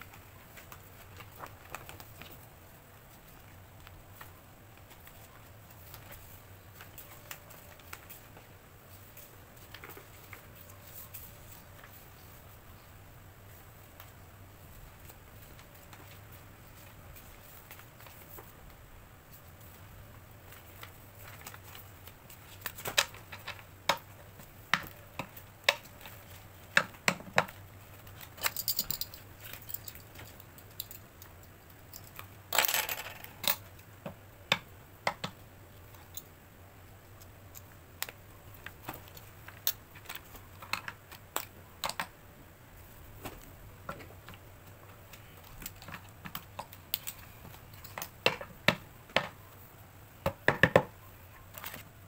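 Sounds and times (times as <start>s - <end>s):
paper rustling: 0.0s - 12.6s
paper stacks tapping on a mat: 50.2s - 51.0s.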